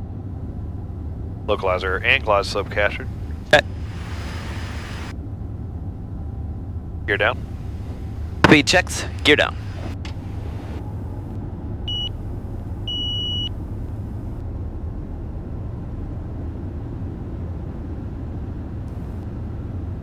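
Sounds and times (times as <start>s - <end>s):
jet cockpit rumble: 0.0s - 20.0s
short electronic beeps: 11.9s - 12.2s, 12.9s - 13.5s.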